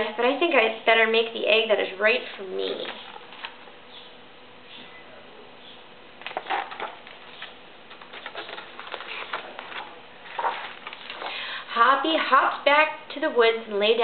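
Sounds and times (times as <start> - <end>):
faint steady hum: 0.0 - 14.0
rustles and taps handling a book: 6.2 - 11.4.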